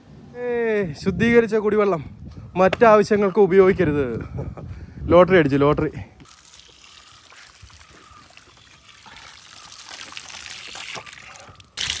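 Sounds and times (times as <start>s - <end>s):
water pouring from tap: 6.3s - 12.0s.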